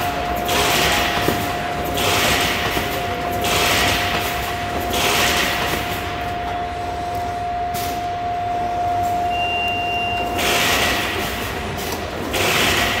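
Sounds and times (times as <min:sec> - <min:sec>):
machine mechanical din with whine: 0:00.0 - 0:13.0
brief higher tone: 0:07.4 - 0:10.4.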